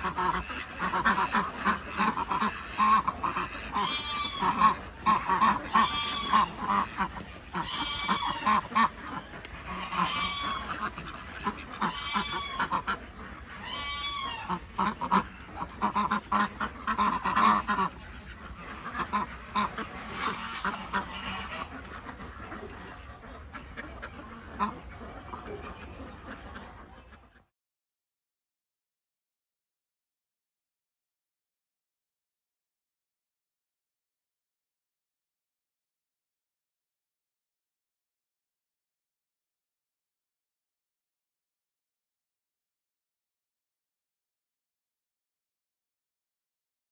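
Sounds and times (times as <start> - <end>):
ducks quacking: 0.0 - 27.5.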